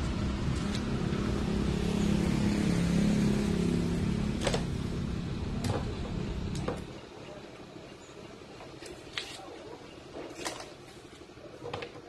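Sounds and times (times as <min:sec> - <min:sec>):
low engine hum: 0:00.0 - 0:07.7.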